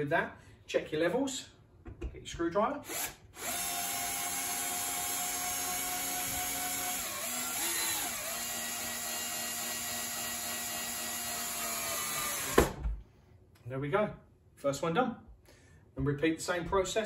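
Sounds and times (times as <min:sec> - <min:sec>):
cordless drill whining: 0:02.9 - 0:12.8.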